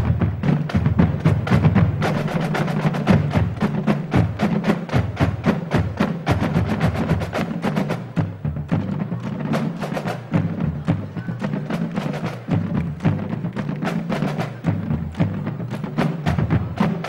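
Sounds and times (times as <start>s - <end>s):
snare drums playing: 0.0s - 17.0s.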